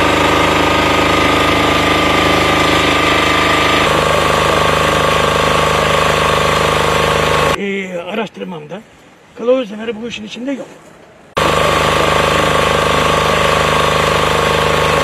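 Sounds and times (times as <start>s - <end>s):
engine running with rapid pulse: 0.0s - 7.6s, 11.4s - 15.0s.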